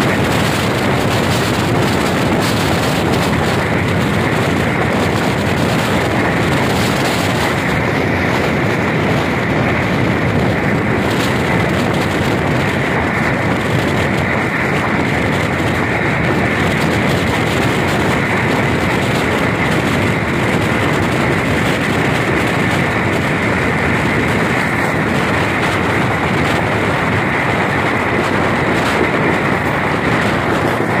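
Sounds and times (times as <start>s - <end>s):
high steady whine: 0.0s - 31.0s
wheels rushing on rail: 0.0s - 31.0s.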